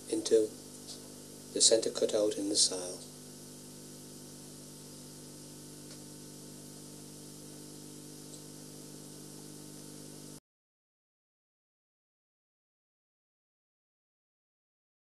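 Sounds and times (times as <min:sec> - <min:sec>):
low even hum: 0:00.0 - 0:10.4
steady recording hiss: 0:00.0 - 0:10.4
faint ticks: 0:08.2 - 0:08.5.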